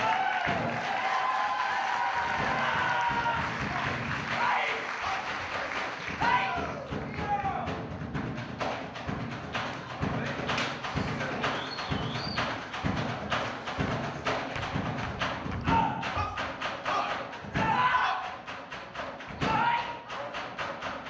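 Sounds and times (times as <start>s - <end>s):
music: 0.0s - 21.0s.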